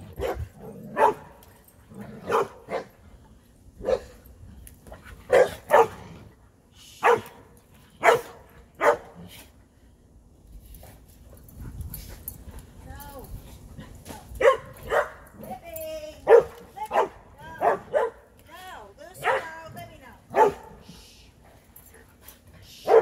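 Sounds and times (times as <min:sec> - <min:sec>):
dog barking: 0:01.0 - 0:01.2, 0:02.3 - 0:02.9, 0:03.8 - 0:04.1, 0:05.3 - 0:06.0, 0:07.0 - 0:07.3, 0:08.0 - 0:09.1, 0:14.4 - 0:15.2, 0:16.3 - 0:18.2, 0:20.3 - 0:20.7.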